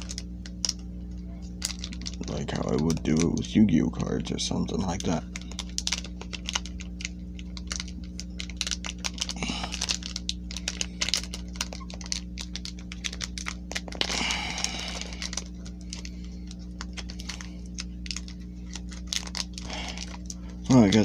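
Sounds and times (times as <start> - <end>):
foil wrapper crackling: 0.0 - 21.0
low electrical hum: 0.0 - 21.0.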